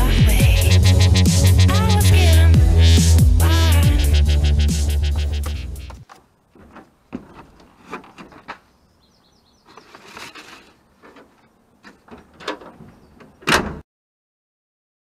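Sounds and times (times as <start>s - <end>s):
light knocks and rustles: 5.9s - 8.8s, 9.6s - 13.8s
bird twitter: 8.7s - 10.0s.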